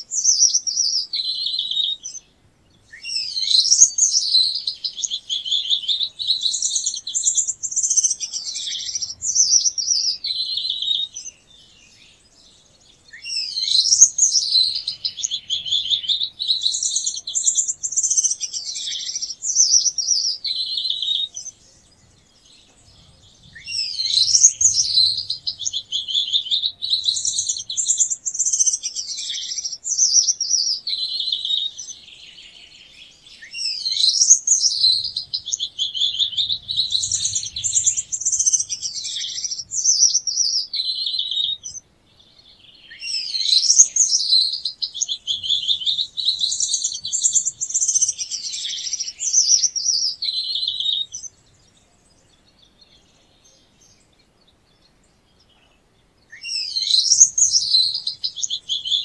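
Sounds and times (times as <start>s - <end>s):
finch singing buzzy phrases: 13.1s - 22.2s, 22.9s - 32.1s, 42.9s - 51.3s, 56.4s - 59.0s.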